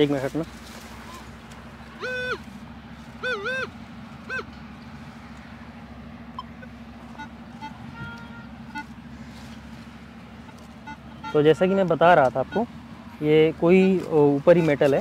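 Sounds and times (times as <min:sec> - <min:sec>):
metal detector beeps: 0:06.3 - 0:08.9, 0:10.5 - 0:11.7.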